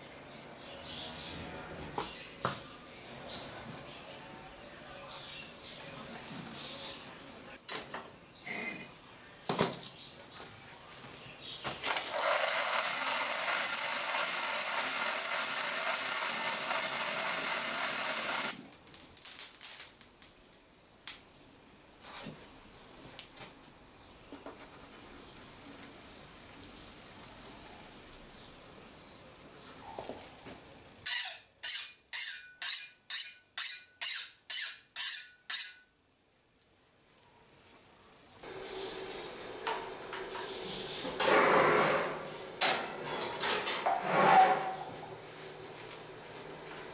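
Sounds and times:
hot blade sizzling in water: 12.1 - 18.6
loud rushing hiss: 12.1 - 18.6.

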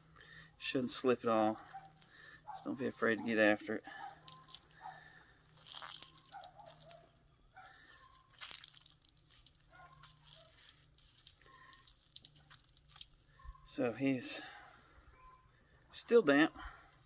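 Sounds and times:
wet fur squishing and crunching: 1.4 - 13.8.

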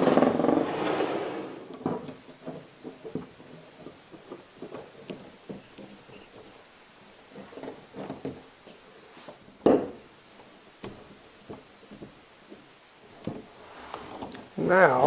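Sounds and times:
clicks and knocks of metal and wood: 1.7 - 13.6.

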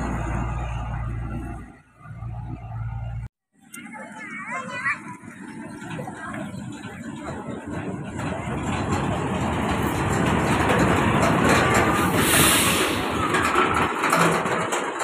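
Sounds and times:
truck driving past: 0.0 - 3.3
brief hiss: 12.0 - 13.3.

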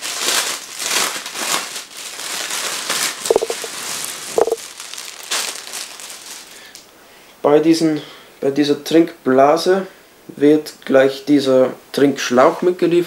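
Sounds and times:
plastic bag crinkling: 0.0 - 6.8.

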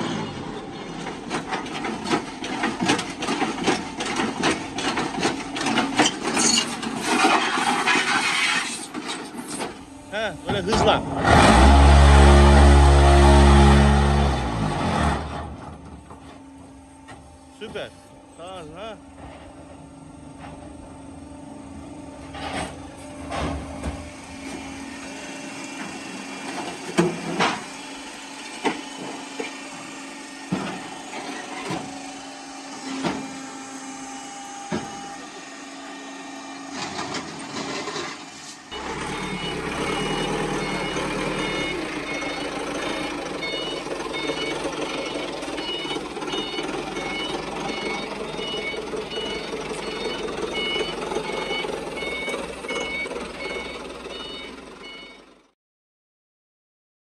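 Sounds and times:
forklift engine: 0.0 - 55.6
motor hum: 9.7 - 55.4
reversing alarm beeping: 30.8 - 36.7, 38.7 - 55.5.

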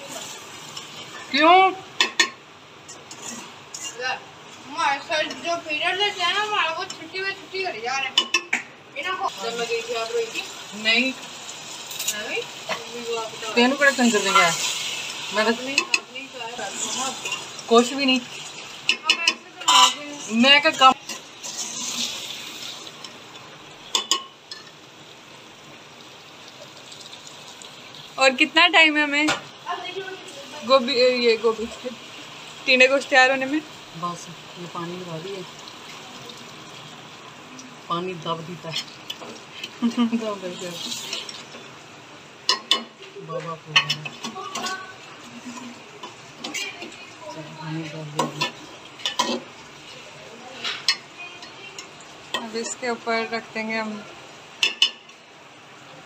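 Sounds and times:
curry sizzling: 0.0 - 56.0
spoon scraping metal pot: 2.9 - 4.0.

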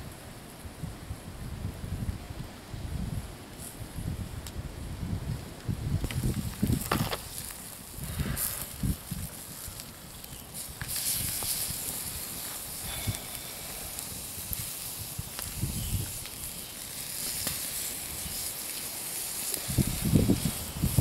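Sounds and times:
campfire crackling: 0.0 - 21.0
sausages sizzling: 6.0 - 21.0.

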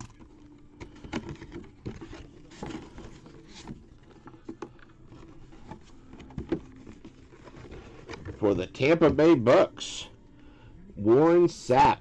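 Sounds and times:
cardboard box being handled: 0.9 - 9.2.

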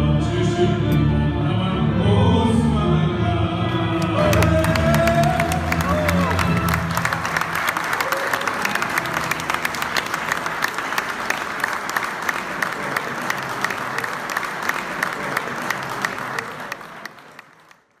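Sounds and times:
crowd applauding: 4.0 - 18.0.

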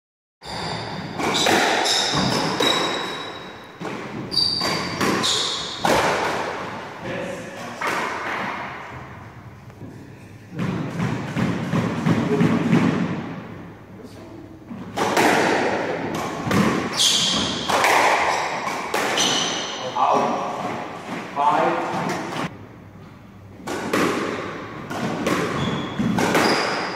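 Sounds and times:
shoes squeaking on wooden floor: 0.4 - 6.0, 16.9 - 20.6, 25.5 - 26.9
squash ball smacking rackets and walls: 0.4 - 9.9, 10.5 - 13.7, 14.6 - 26.9.

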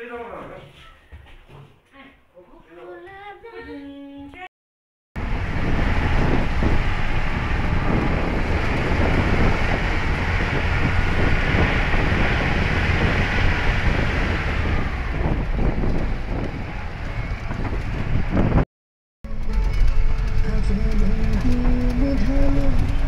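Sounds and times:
wind buffeting microphone: 5.2 - 18.6.

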